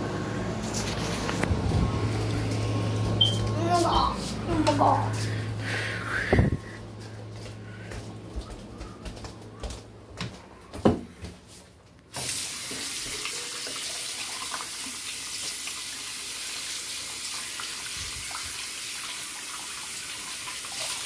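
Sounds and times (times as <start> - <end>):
bathroom tap running: 12.1 - 21.0.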